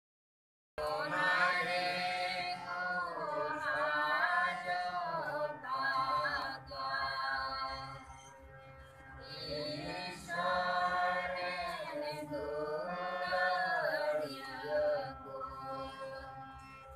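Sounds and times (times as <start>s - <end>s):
congregation singing a hymn: 0.8s - 7.6s, 9.3s - 15.8s
harmonium held notes: 0.8s - 16.9s.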